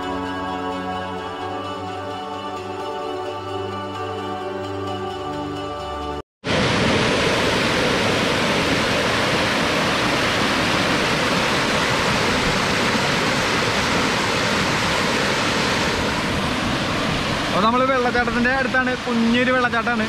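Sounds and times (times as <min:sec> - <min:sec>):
waterfall rushing over rock: 0:06.5 - 0:20.0.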